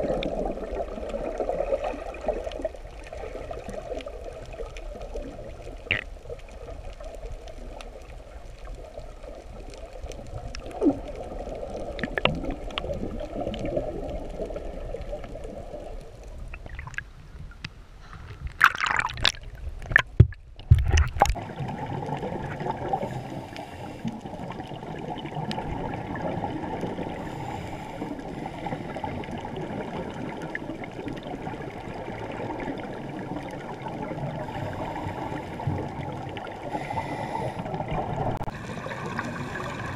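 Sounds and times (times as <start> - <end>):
dull underwater noise: 0.0 - 39.9
loud water splashing: 18.6 - 20.1.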